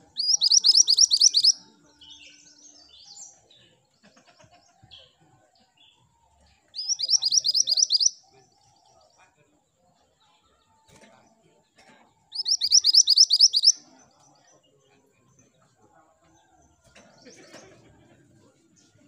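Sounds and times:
bird singing high rising notes: 0.0 - 3.2, 6.8 - 8.2, 12.4 - 13.8
soft bird chirps: 0.0 - 5.2, 5.8 - 9.4, 12.3 - 15.6.

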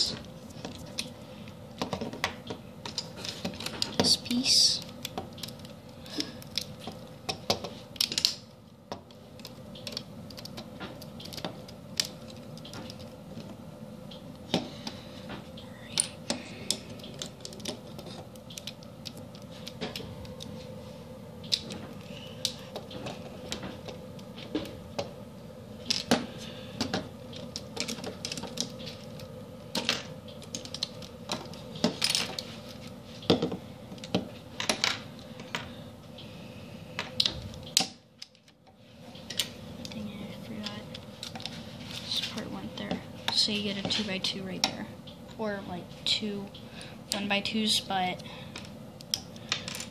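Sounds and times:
plastic pieces clicking together: 9.4 - 13.1.

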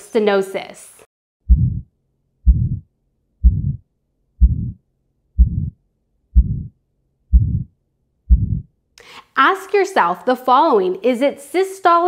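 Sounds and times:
heartbeat with harsh murmur: 1.4 - 4.8, 5.4 - 5.8, 6.4 - 8.7.

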